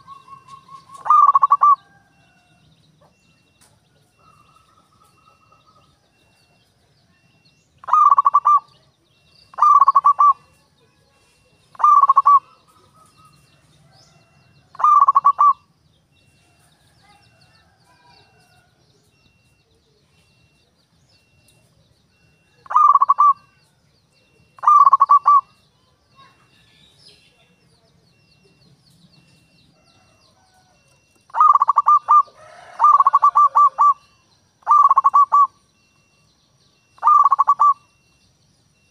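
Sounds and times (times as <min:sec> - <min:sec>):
dove cooing: 0:00.0 - 0:03.3, 0:04.1 - 0:10.7, 0:11.4 - 0:15.7, 0:22.1 - 0:23.6, 0:24.2 - 0:26.3, 0:29.7 - 0:36.2, 0:36.8 - 0:38.2.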